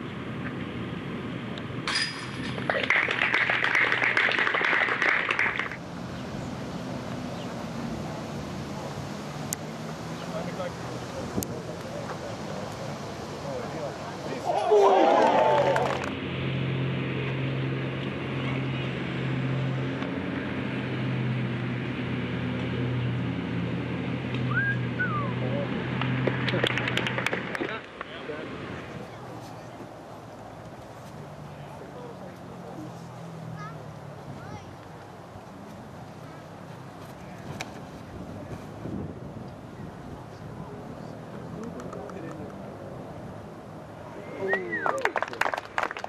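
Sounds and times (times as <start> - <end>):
disc striking basket chains: 1.8 - 2.8
spectators applauding: 2.7 - 5.8, 14.7 - 16.1, 26.4 - 27.8, 44.5 - 46.0
whistled call sliding in pitch: 24.5 - 25.4.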